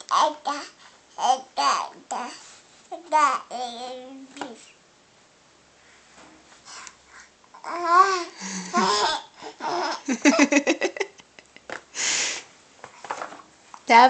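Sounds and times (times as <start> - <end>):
baby babbling: 0.0 - 4.4, 7.5 - 10.0
short breathy burst: 11.9 - 12.5.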